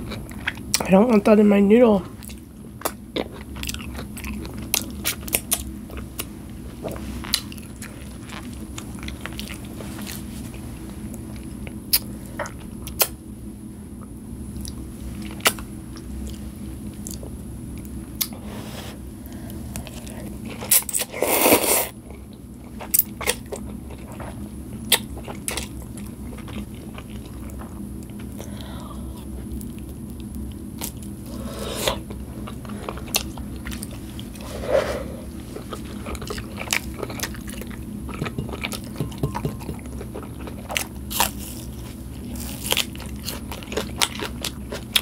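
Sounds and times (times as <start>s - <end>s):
low hum: 25.5s - 43.6s
slurping noodles: 34.3s - 36.2s
chewing and mouth clicks: 35.4s - 45.0s.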